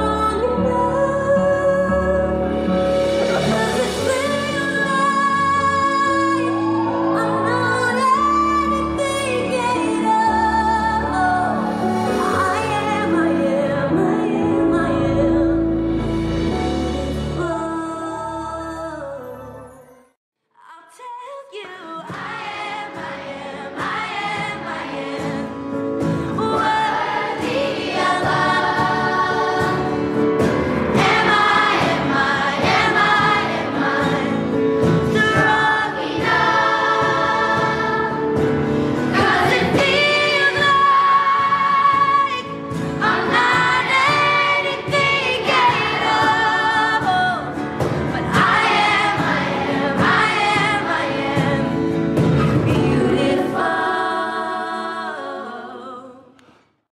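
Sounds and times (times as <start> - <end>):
woman singing into a microphone: 0.0 - 2.6, 3.2 - 15.8, 20.6 - 28.9, 35.0 - 36.0, 39.2 - 48.6, 49.6 - 56.4
instrumental backing: 0.0 - 18.6, 22.5 - 53.8.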